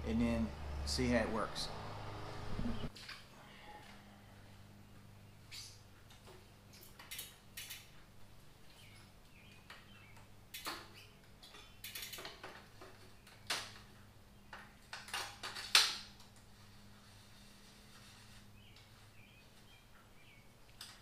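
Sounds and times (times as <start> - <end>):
metallic clicks and rattles: 10.5 - 16.4.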